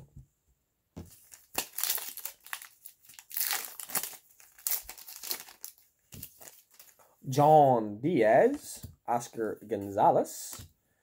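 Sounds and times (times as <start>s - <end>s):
foil wrapper crinkling and tearing: 1.2s - 7.1s.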